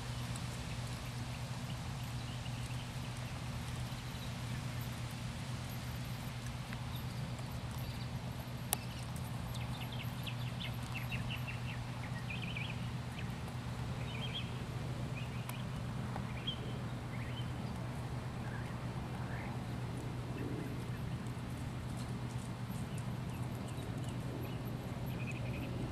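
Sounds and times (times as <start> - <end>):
small birds chirping: 0.0 - 25.9
hoofbeats on grass: 19.1 - 25.9.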